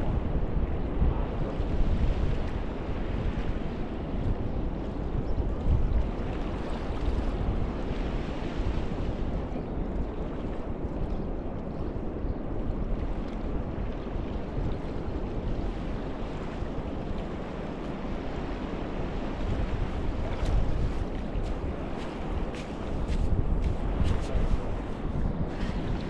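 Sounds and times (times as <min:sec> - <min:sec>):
small waves washing onto beach: 0:00.0 - 0:26.0
wind rumbling on microphone: 0:00.0 - 0:26.0.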